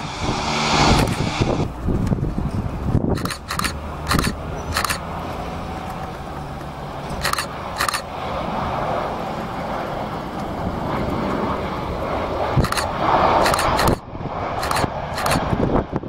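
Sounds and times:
jet engines roaring: 0.0s - 16.0s
short clicks: 3.2s - 5.0s, 7.2s - 8.1s, 12.6s - 14.0s, 14.6s - 15.4s.

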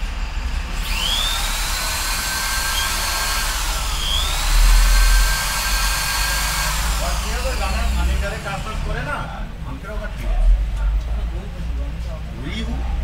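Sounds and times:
electric drill motor whining: 0.7s - 9.0s.

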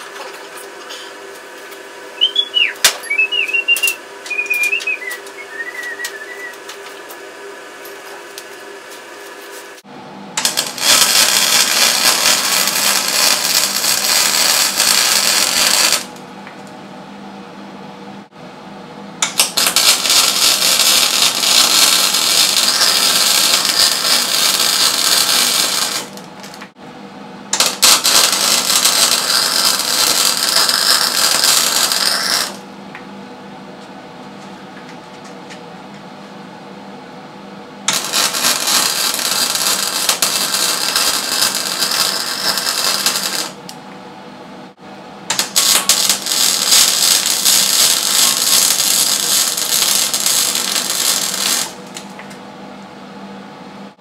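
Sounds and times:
welding arc crackling: 10.4s - 16.2s, 19.2s - 26.7s, 27.5s - 32.6s, 37.9s - 43.7s, 45.3s - 52.1s.

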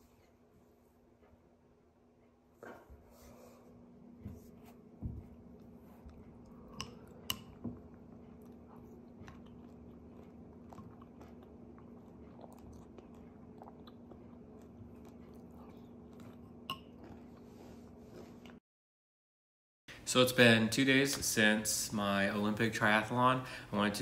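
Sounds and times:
steady low hum: 0.0s - 18.6s.

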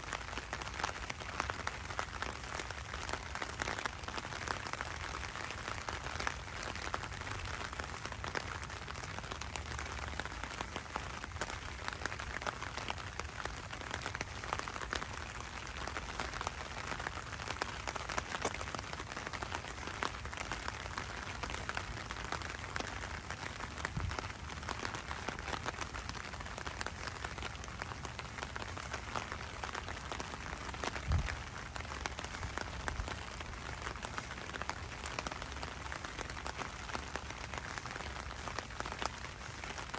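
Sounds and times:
rain on wet street: 0.0s - 39.9s.

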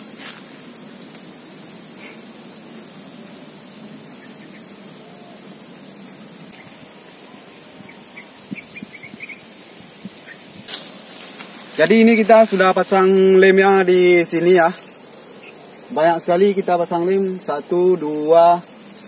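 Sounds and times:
insects droning: 0.0s - 19.0s
twigs ticking being handled: 10.6s - 13.0s.

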